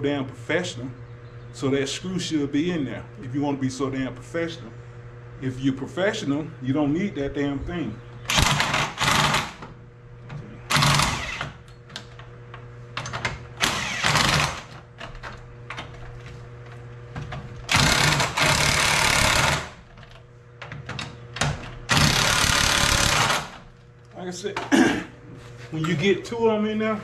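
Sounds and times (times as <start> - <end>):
impact wrench running: 8.3 - 9.7, 10.7 - 11.7, 13.0 - 14.9, 17.6 - 19.9, 21.8 - 23.7.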